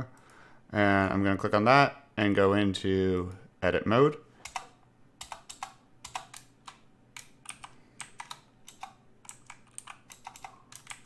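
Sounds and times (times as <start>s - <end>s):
keyboard keys clicking: 4.4s - 11.0s.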